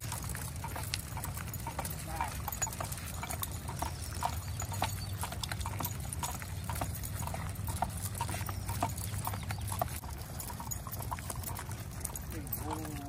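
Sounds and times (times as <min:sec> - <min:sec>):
dog claws clicking on pavement: 0:00.0 - 0:13.0.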